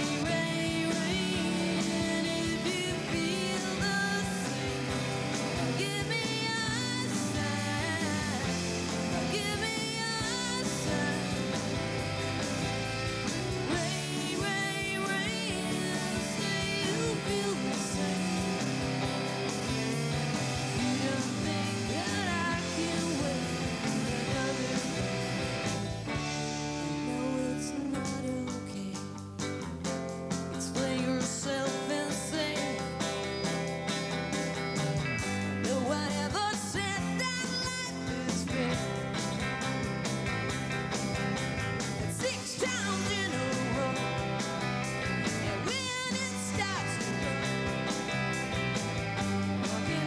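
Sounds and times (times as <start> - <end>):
woman singing: 0.0 - 11.9, 13.4 - 25.7, 26.6 - 29.1, 30.5 - 33.1, 35.6 - 39.1, 42.0 - 44.5, 45.4 - 48.0, 49.5 - 50.0
bass guitar: 0.0 - 50.0
drum kit: 0.0 - 50.0
electric guitars: 0.0 - 50.0.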